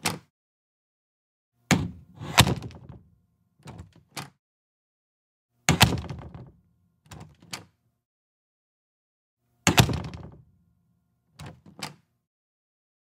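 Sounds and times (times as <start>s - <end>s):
door latch clicks: 0.0s - 0.3s
door thumping shut: 1.7s - 3.1s, 5.7s - 6.6s, 9.7s - 10.5s.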